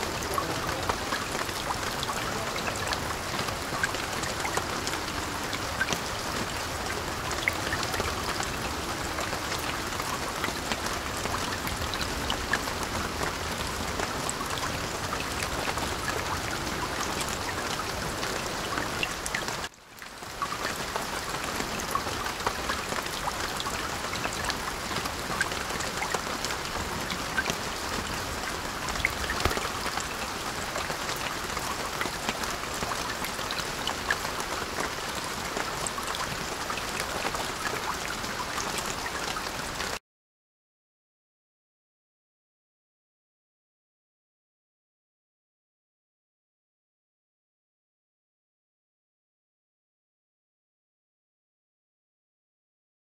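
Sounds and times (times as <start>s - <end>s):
steady rain pattering: 0.0s - 40.0s.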